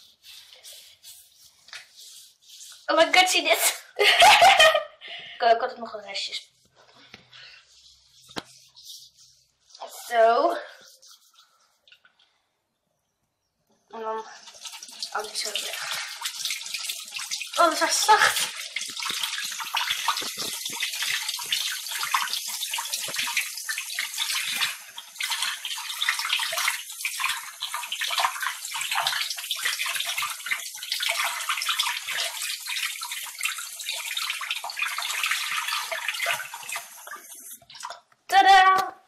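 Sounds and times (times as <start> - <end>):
water running from a tap: 14.0 - 38.8
water splashing over hands: 14.5 - 38.0.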